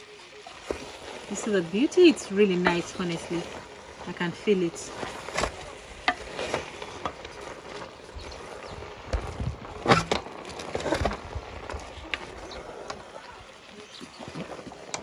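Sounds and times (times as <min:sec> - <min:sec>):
wooden spoon scraping metal pot: 0:00.4 - 0:09.2.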